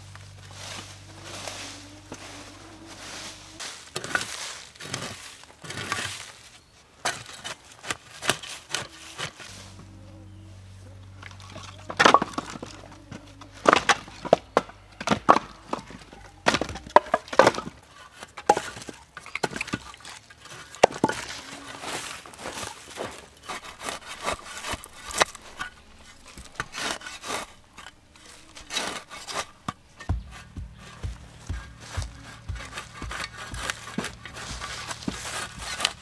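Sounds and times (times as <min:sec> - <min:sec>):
firewood logs knocking together: 0:07.0 - 0:09.5, 0:11.1 - 0:36.0.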